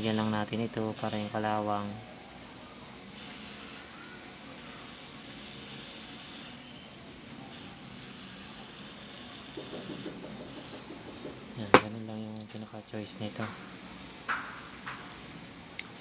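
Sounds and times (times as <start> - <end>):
aerosol spray hissing: 1.0 - 1.3.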